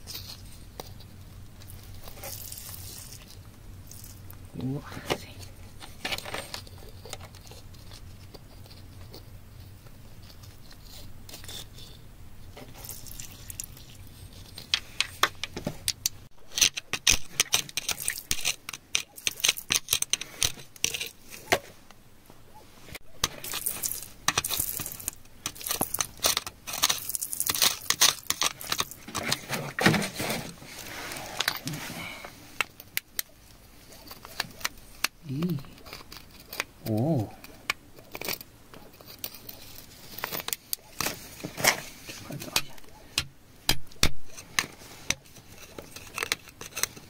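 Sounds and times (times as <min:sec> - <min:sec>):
metal tool digging gravelly soil: 0:01.9 - 0:04.2, 0:12.6 - 0:14.7, 0:23.0 - 0:32.1.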